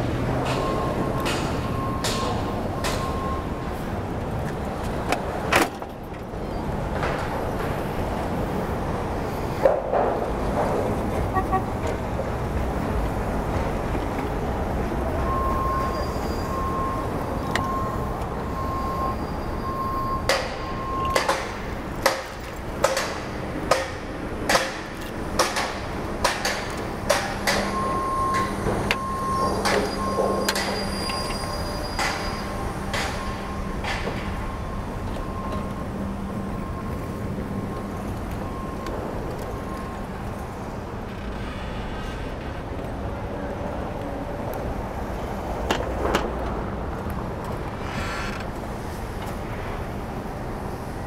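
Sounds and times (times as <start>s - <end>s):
city street noise: 0.0s - 51.0s
sharp knocks: 21.2s - 27.7s.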